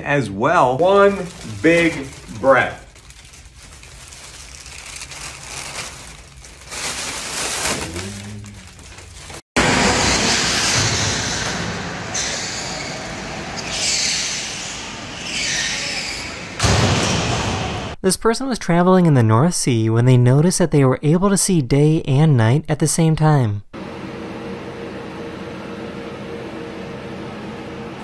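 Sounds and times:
plastic rustling: 0:00.8 - 0:09.4.

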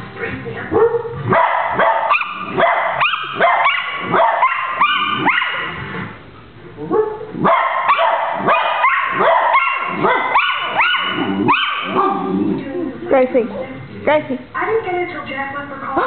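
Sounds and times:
dogs howling and yipping: 0:01.7 - 0:05.8, 0:07.0 - 0:12.6.

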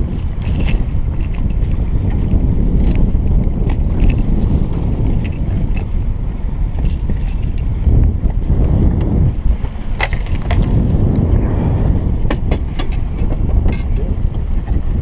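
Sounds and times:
metallic clicks and jingles of lure: 0:00.0 - 0:06.1, 0:06.7 - 0:07.7, 0:10.0 - 0:10.7
wind buffeting microphone: 0:00.0 - 0:15.0.

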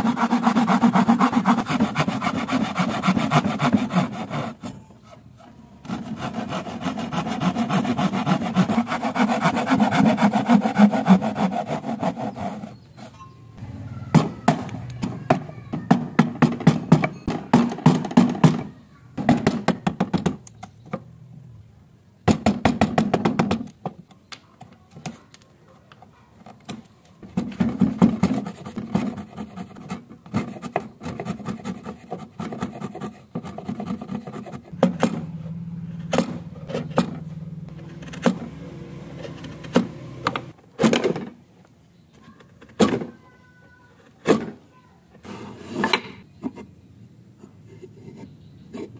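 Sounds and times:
chisel chopping wood: 0:34.8 - 0:35.2, 0:36.1 - 0:37.2.

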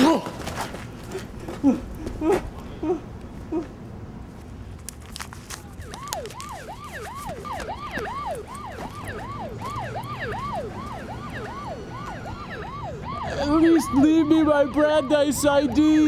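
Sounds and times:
faint rustles and clicks: 0:03.2 - 0:09.7
siren yelping: 0:05.6 - 0:16.0.

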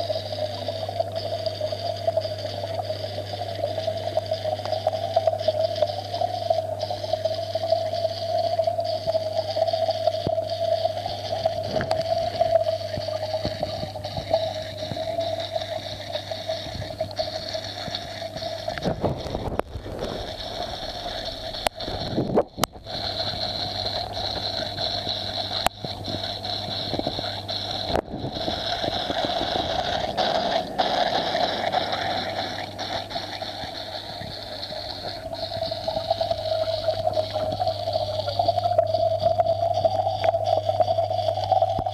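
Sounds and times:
aquarium equipment humming: 0:00.0 - 0:41.9.

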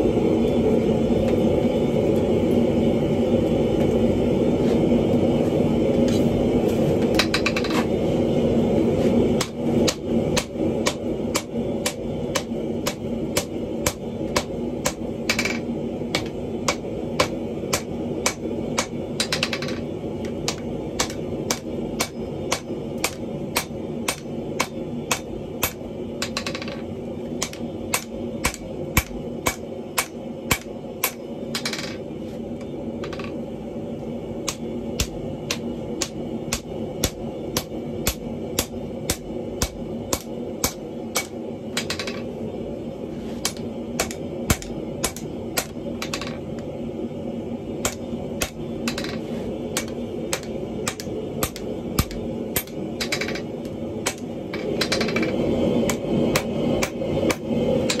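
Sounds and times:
low hum: 0:00.0 - 0:58.0
hammer striking iron on anvil: 0:09.4 - 0:19.8, 0:20.4 - 0:26.8, 0:27.4 - 0:31.8, 0:34.4 - 0:42.2, 0:43.4 - 0:46.4, 0:47.8 - 0:55.2.

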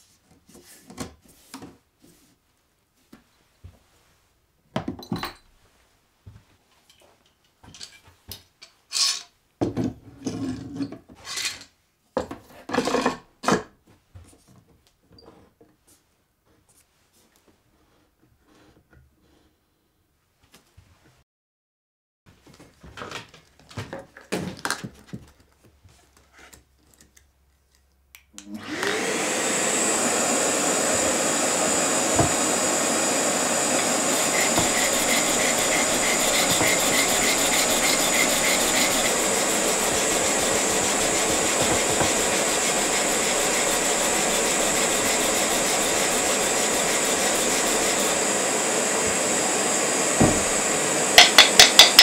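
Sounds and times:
vacuum cleaner running: 0:28.4 - 0:52.0
hand sanding wood: 0:29.0 - 0:52.0.

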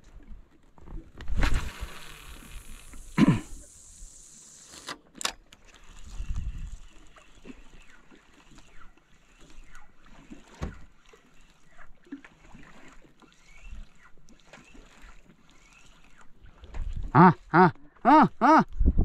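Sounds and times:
water lapping against boat hull: 0:00.0 - 0:19.0
small water splashes: 0:05.5 - 0:18.1.

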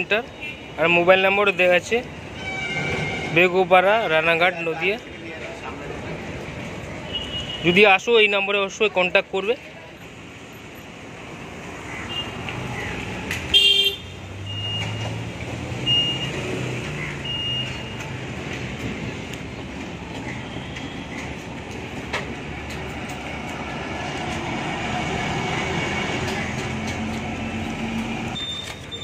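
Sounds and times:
road noise: 0:00.0 - 0:29.0
vehicle horn toot: 0:13.5 - 0:14.8.

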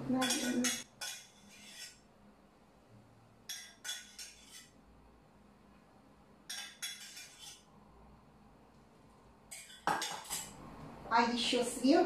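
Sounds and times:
utensils clinking against dishes: 0:00.1 - 0:02.0, 0:03.5 - 0:04.7, 0:06.5 - 0:07.7, 0:09.5 - 0:10.6.

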